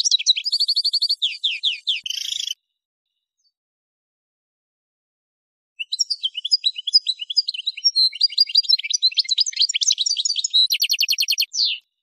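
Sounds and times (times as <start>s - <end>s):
goldfinch twittering song: 0.0s - 2.6s, 5.8s - 11.9s.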